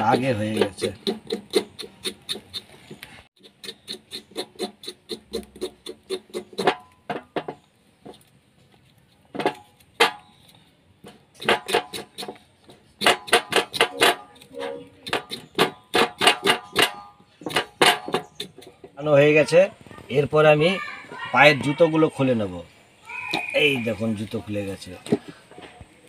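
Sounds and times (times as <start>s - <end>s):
knife scraping hair off trotter: 0.0s - 6.9s, 8.0s - 18.9s.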